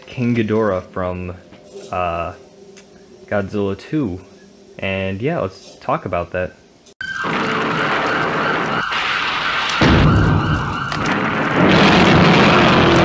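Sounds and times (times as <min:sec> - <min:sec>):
siren-like tone: 0:06.5 - 0:11.5
rumbling explosion-like din: 0:07.2 - 0:13.0.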